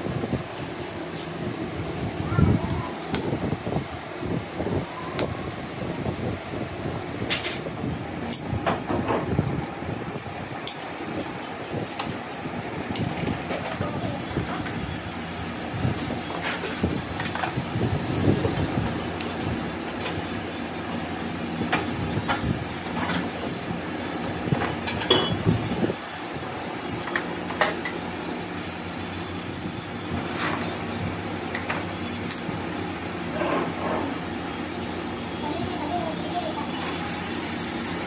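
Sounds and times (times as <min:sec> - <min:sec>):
low mechanical hum: 0:00.0 - 0:38.0
metal tools clinking on metal: 0:21.6 - 0:25.5.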